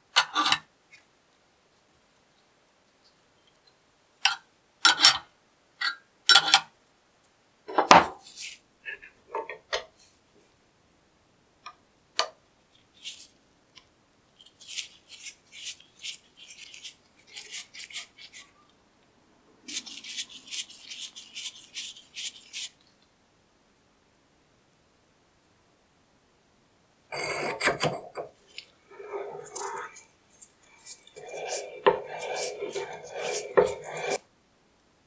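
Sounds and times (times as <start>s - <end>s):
screwdriver scraping rusty metal: 27.1s - 34.2s.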